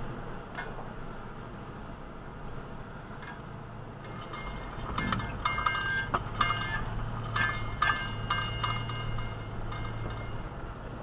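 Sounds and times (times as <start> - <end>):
low engine hum: 0.0 - 11.0
metal objects clinking and rattling: 4.0 - 10.5.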